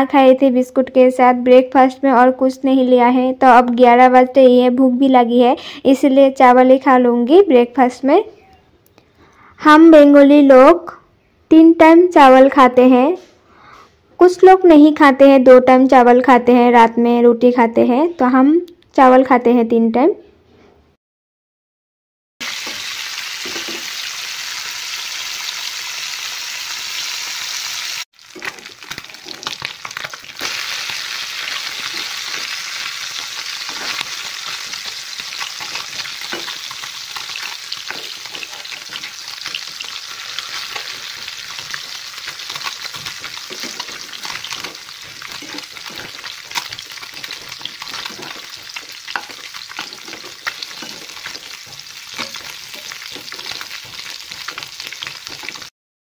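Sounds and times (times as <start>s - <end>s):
fish sizzling in oil: 22.4s - 55.7s
spatula scraping a wok: 31.5s - 55.6s.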